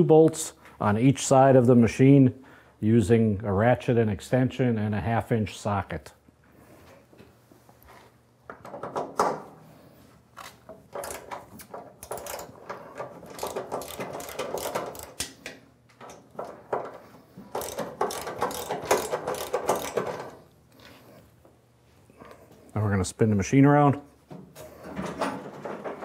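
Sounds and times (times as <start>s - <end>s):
ratchet wrench clicking: 13.3s - 15.3s, 17.5s - 20.2s.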